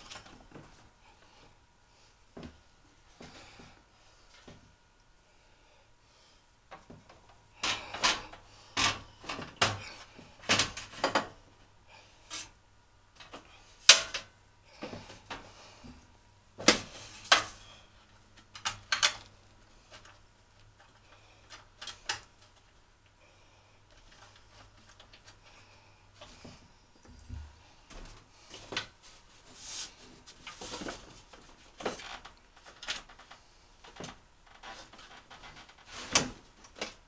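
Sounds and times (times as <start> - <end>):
heater panels clicking and knocking: 6.7 - 11.5, 13.1 - 16.0, 16.6 - 22.8, 30.3 - 37.0.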